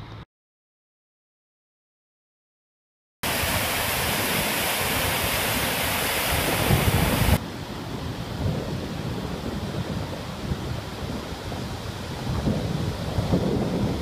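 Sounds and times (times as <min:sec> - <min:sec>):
wind buffeting microphone: 0:03.2 - 0:14.0.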